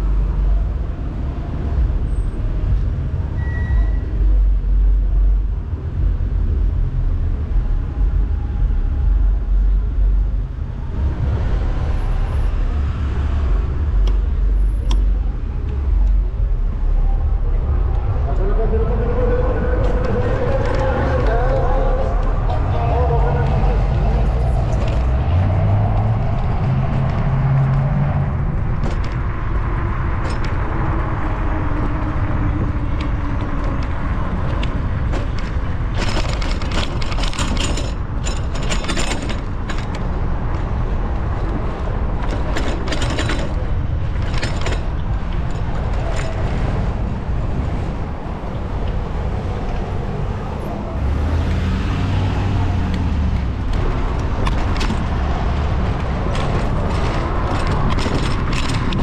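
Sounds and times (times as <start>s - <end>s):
road rumble: 0.0s - 59.0s
wind: 0.0s - 59.0s
bike and basket rattling: 28.6s - 48.5s, 53.4s - 59.0s.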